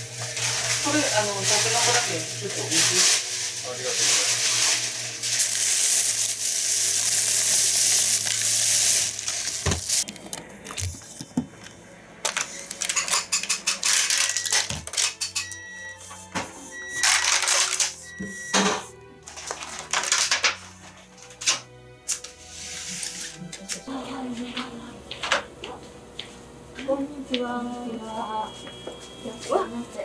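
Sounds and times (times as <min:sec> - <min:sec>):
steady kitchen hiss: 0:00.0 - 0:10.0
plastic food pack crackling: 0:00.0 - 0:11.7, 0:19.3 - 0:20.8.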